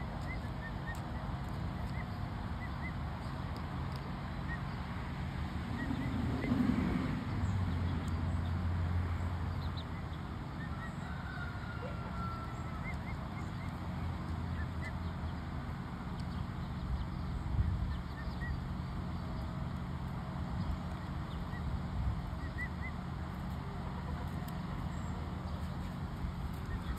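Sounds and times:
steady low hum: 0.0s - 26.9s
drawn-out bird whistle: 10.6s - 13.7s.

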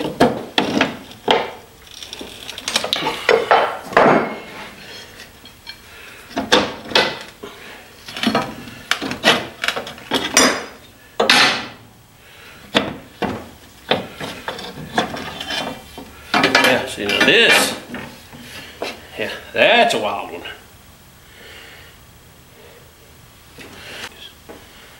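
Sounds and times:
metal leaves scraping: 0.0s - 3.6s, 13.7s - 19.1s
metal leaves clanking on wood: 0.0s - 5.8s, 12.8s - 18.2s.

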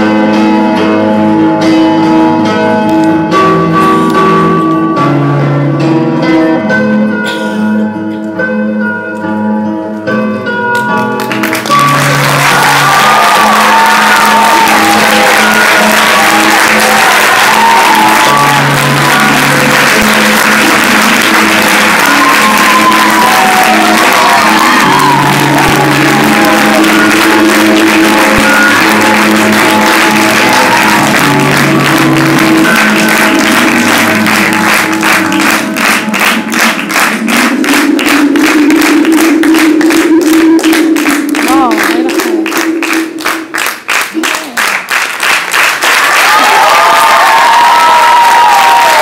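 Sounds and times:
music with sustained notes: 0.0s - 43.3s
rhythmic clapping in unison: 10.7s - 49.0s
audience applause: 11.1s - 49.0s.

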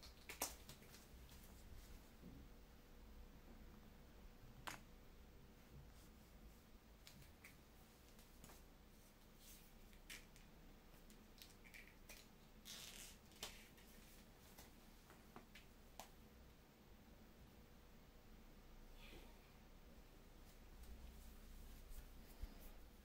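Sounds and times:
faint small clicks and rustles: 7.0s - 16.1s.

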